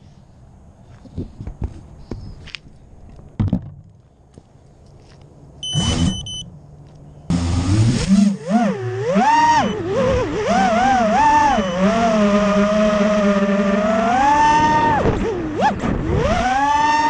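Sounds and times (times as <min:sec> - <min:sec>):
quadcopter motors spooling up: 0:07.3 - 0:17.0.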